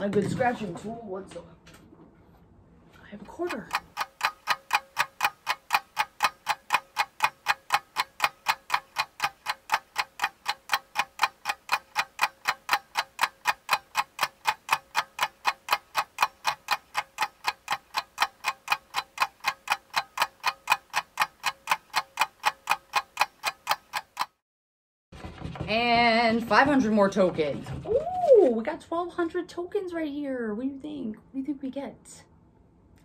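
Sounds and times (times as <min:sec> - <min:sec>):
clock ticking: 0:03.1 - 0:24.4.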